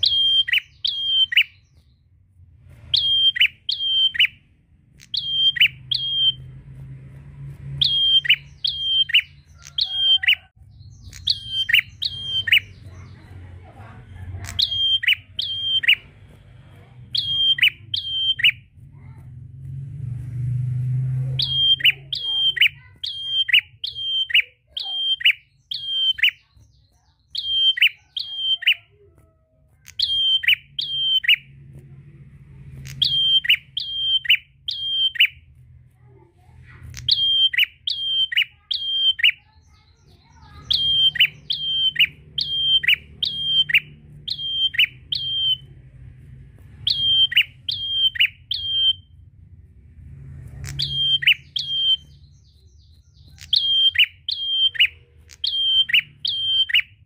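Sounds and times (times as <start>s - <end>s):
bird calling sharp descending notes: 2.9s - 4.4s, 7.6s - 12.8s, 20.4s - 26.4s, 32.8s - 35.4s, 37.1s - 45.8s, 46.7s - 49.3s, 50.1s - 57.0s.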